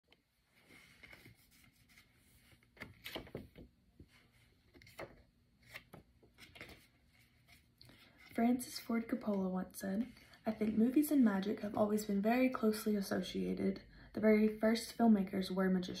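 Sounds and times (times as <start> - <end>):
paper rustling: 0.6 - 8.4.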